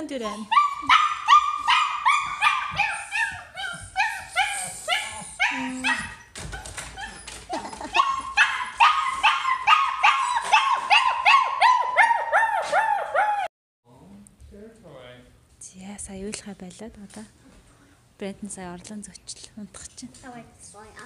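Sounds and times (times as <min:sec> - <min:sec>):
puppy whining and yipping: 0:00.2 - 0:13.5.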